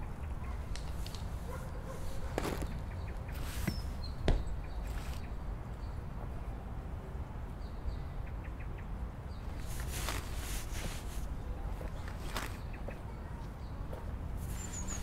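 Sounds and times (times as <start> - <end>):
fabric rustling: 1.4 - 2.8, 9.6 - 11.3, 12.0 - 12.6.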